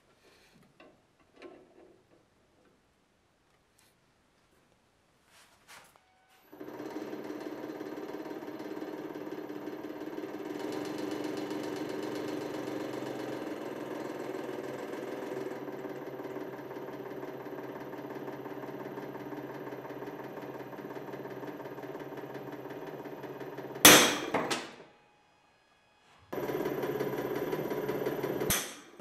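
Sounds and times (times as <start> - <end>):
hydraulic pump motor running: 6.4 - 24.8, 26.3 - 29.0
loud metal crack with ringing: 23.8 - 24.8, 28.4 - 29.0.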